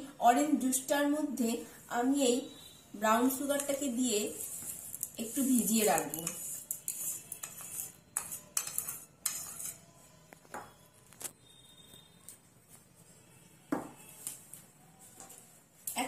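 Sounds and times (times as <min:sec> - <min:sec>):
spoon scraping and tapping bowl: 0:04.6 - 0:09.9.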